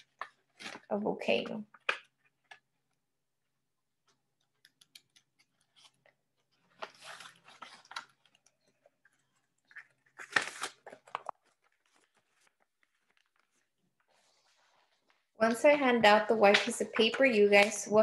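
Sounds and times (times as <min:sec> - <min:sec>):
paper rustling and crinkling: 0:00.0 - 0:01.0, 0:04.0 - 0:15.2.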